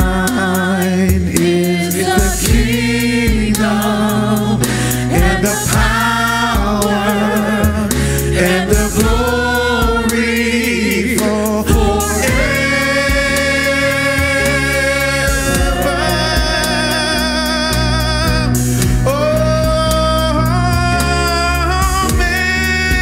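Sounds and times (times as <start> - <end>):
instrumental backing with bass: 0.0 - 23.0
voices singing gospel: 0.0 - 23.0.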